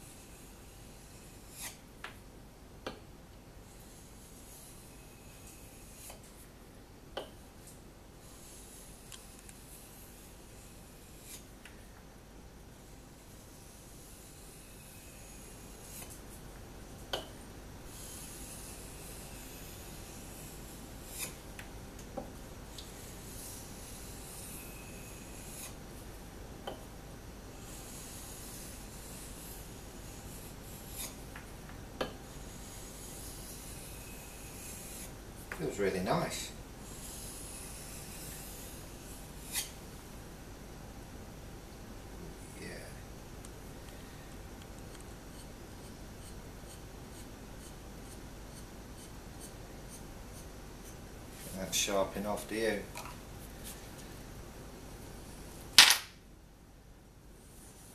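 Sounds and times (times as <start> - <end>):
knife scraping on whetstone: 0.0 - 1.8, 3.6 - 6.4, 8.2 - 11.5, 12.8 - 16.2, 17.9 - 21.4, 22.7 - 25.8, 27.5 - 31.3, 32.0 - 39.8.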